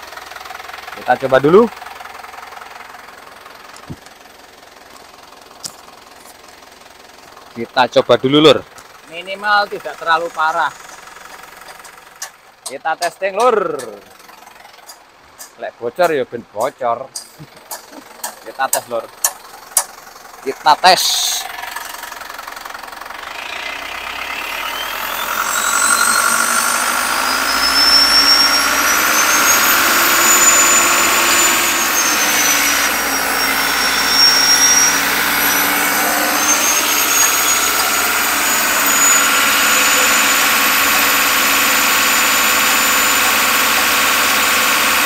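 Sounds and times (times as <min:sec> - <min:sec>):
diesel engine revving: 0:00.0 - 0:45.0
turbocharger whistling: 0:07.8 - 0:12.4, 0:18.2 - 0:45.0.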